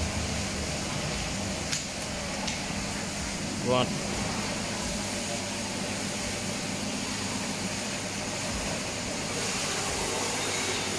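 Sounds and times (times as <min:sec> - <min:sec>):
machine hiss: 0:02.6 - 0:10.9.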